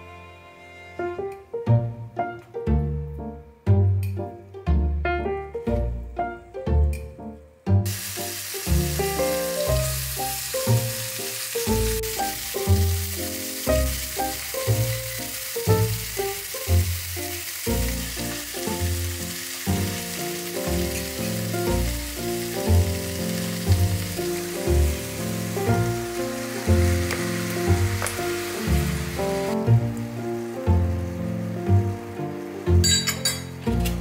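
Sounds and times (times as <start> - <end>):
background music: 0.0 - 34.0
meat sizzling in a pot: 7.8 - 33.6.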